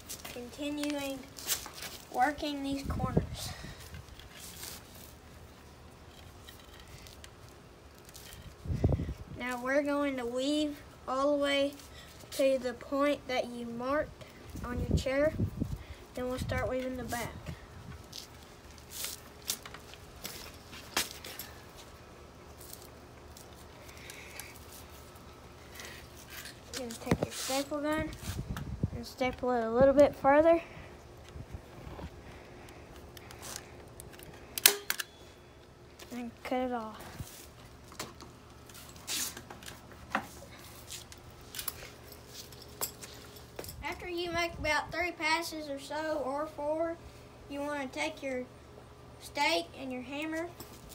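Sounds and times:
cord rustling and creaking on wood: 0:00.0 - 0:02.2, 0:02.8 - 0:09.7, 0:15.6 - 0:28.6, 0:31.1 - 0:34.5.

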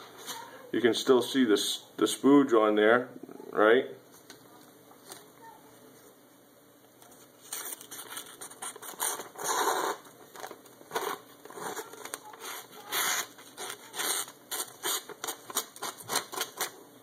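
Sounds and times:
paper crackling: 0:07.0 - 0:16.8.

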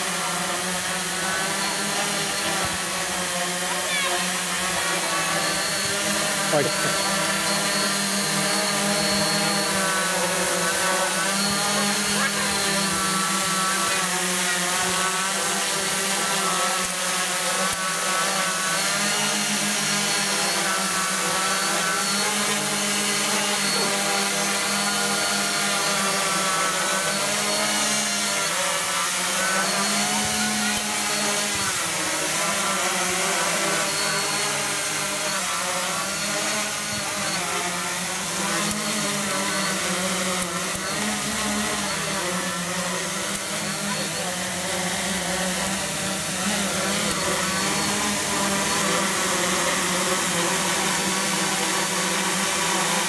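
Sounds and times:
drone motors buzzing: 0:00.0 - 0:53.0.

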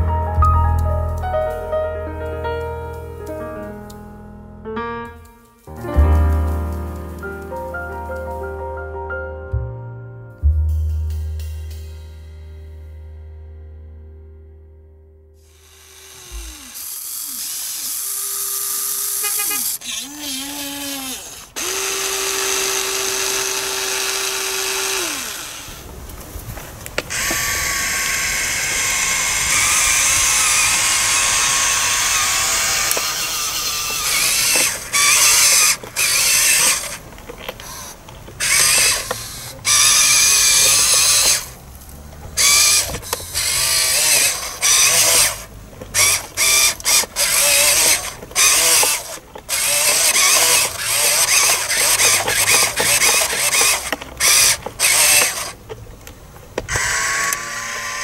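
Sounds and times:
toy truck electric motors whining: 0:15.4 - 0:26.1, 0:26.9 - 0:58.0.

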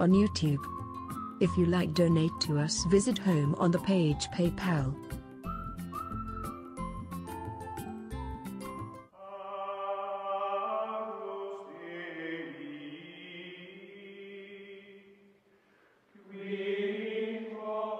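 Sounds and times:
choir chanting held notes: 0:16.2 - 0:17.9.

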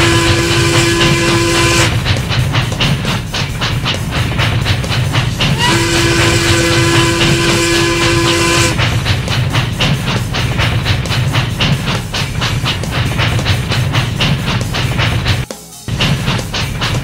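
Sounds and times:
steam whistle blast: 0:00.0 - 0:02.0, 0:05.5 - 0:08.8
steam train chugging: 0:00.0 - 0:17.0.

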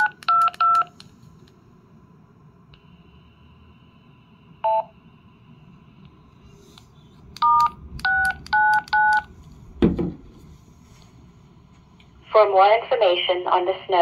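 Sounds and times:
keypad tones: 0:00.0 - 0:01.0, 0:07.4 - 0:09.3.

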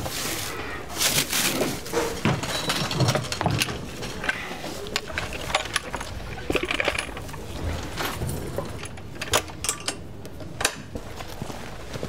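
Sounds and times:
gear clattering and scraping: 0:01.0 - 0:10.0.

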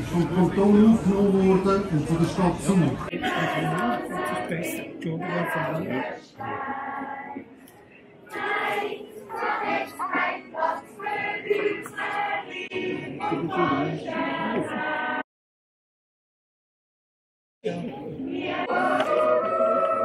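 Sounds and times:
choir yodelling in held chords: 0:18.3 - 0:20.0.

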